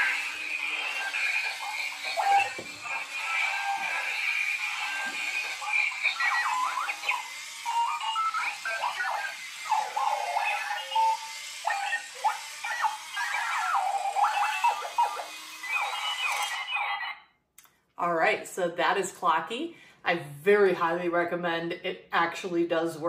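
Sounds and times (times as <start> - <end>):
alarm clock electronic chirps: 0.0 - 17.3.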